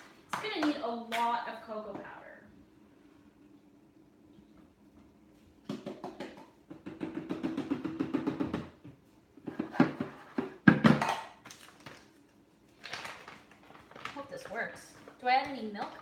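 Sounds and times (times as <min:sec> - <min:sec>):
powder rustling: 0:11.5 - 0:16.0.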